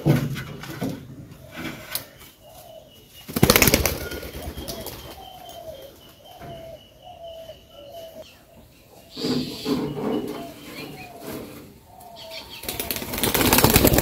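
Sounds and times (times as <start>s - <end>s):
pigeon wings flapping: 3.3s - 5.0s, 12.6s - 14.0s.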